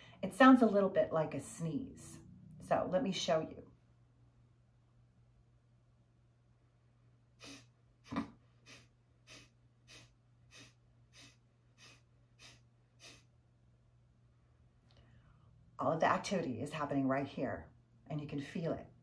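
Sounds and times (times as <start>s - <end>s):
woman exhaling sharply through nose: 7.4s - 7.7s, 8.6s - 13.3s.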